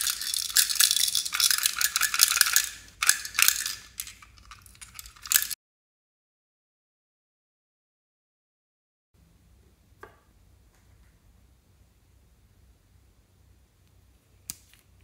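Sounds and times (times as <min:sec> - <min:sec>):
toy bus rattling and clicking: 0:00.0 - 0:05.6.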